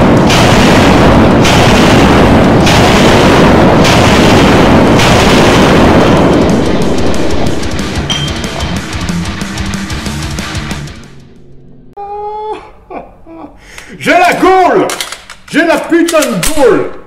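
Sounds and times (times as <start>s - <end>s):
distorted rock music: 5.8s - 11.9s.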